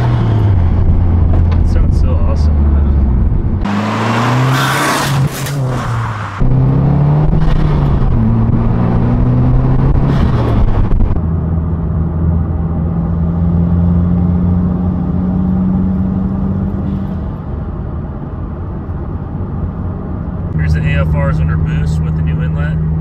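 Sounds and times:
car engine accelerating: 0.0s - 17.8s.

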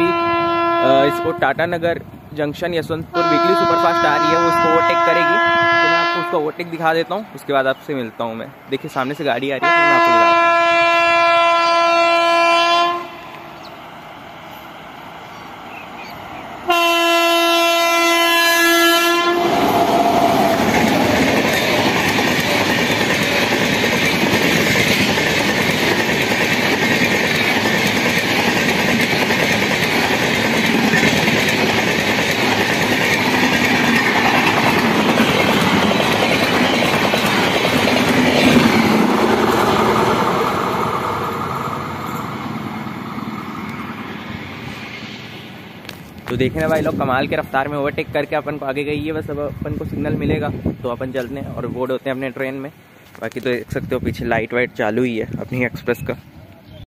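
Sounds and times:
train horn blast: 0.0s - 1.6s, 3.1s - 6.5s, 9.6s - 13.4s, 16.7s - 19.9s
train coaches rushing past: 0.0s - 56.8s.

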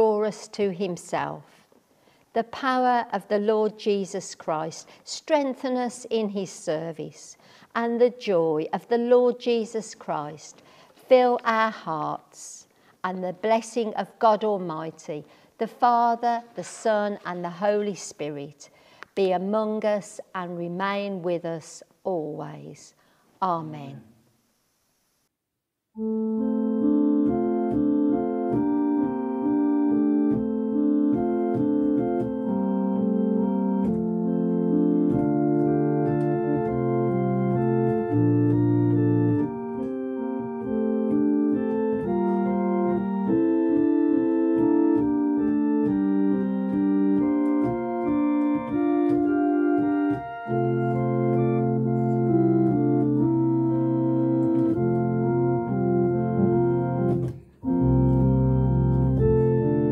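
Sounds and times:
organ chords: 26.0s - 59.9s.

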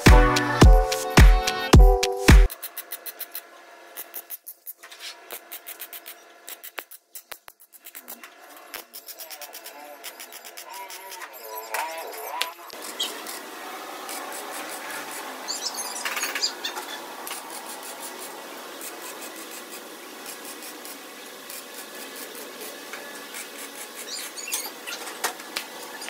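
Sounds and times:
welding arc crackling: 12.5s - 16.3s, 17.0s - 26.0s.

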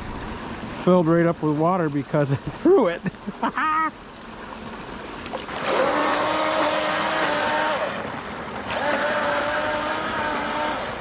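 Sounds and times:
toy boat electric motor whining: 5.5s - 11.0s.

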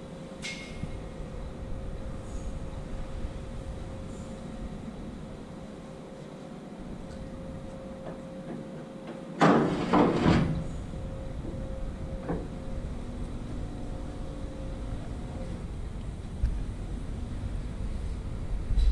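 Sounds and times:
steady background hum: 0.0s - 18.9s
metal trailer door clank and rattle: 9.4s - 10.7s.

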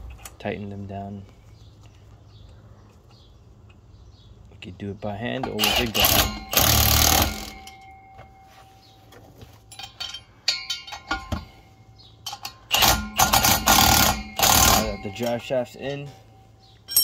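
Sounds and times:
impact wrench hammering: 5.4s - 8.0s, 12.2s - 15.5s.

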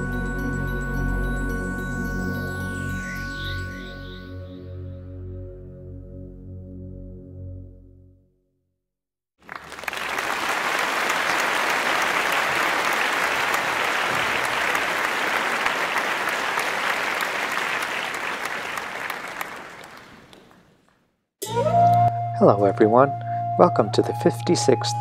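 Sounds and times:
crowd applause: 9.4s - 20.8s.

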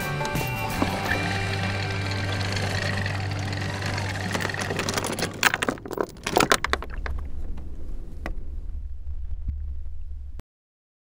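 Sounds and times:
anchor chain clanking: 0.6s - 7.6s
low steady rumble: 0.9s - 10.4s.

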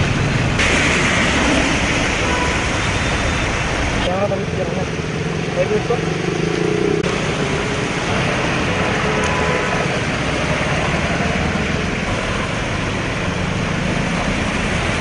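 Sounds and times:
hiss of water and rain: 0.0s - 15.0s.

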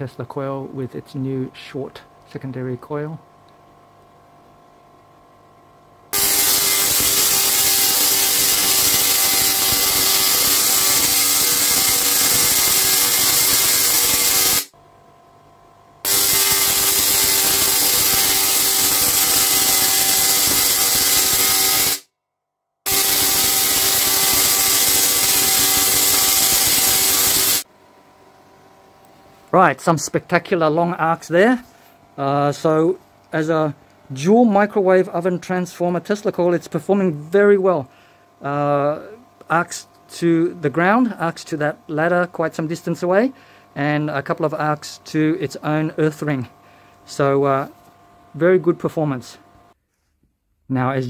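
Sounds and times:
tesla coil buzzing crackle: 6.1s - 14.8s, 16.0s - 22.0s, 22.9s - 27.7s.

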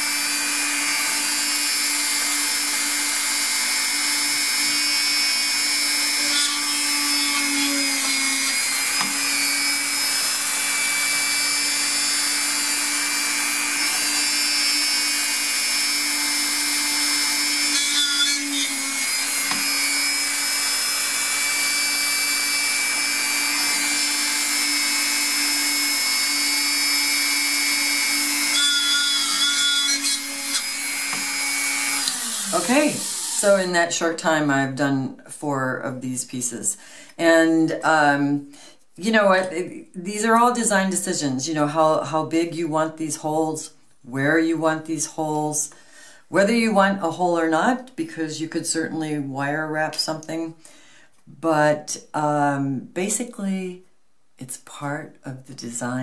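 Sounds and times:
rotary tool whining: 0.0s - 33.4s.

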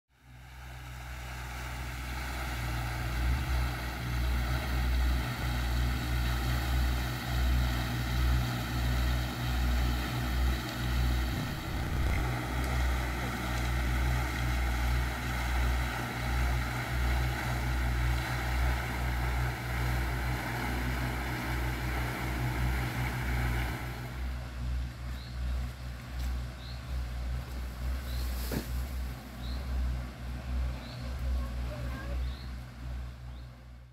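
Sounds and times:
fountain jet splashing into pond: 0.3s - 24.4s
wind rumbling on microphone: 10.4s - 13.8s.

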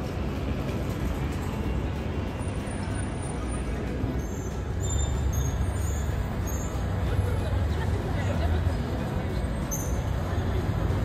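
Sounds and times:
road traffic rumble: 0.0s - 11.0s
faint high squeaks: 4.2s - 6.8s.

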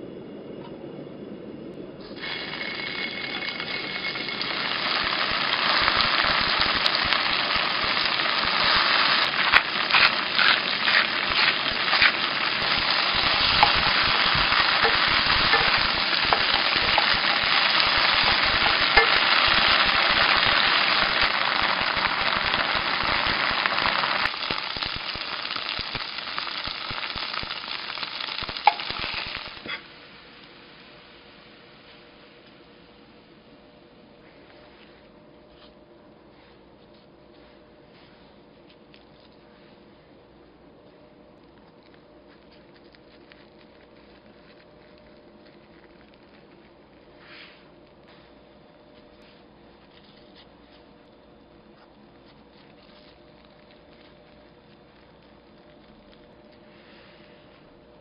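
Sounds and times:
tofu sizzling in a pan: 2.2s - 31.4s.

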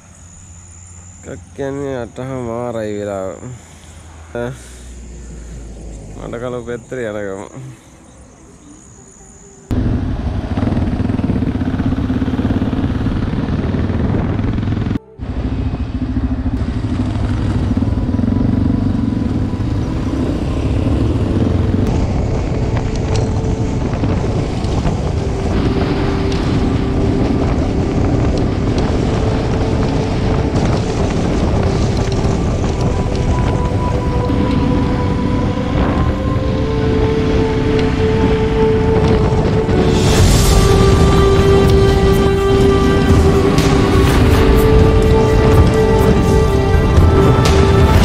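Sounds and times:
road and wind noise: 0.0s - 48.0s
motorcycle engine: 9.7s - 48.0s.

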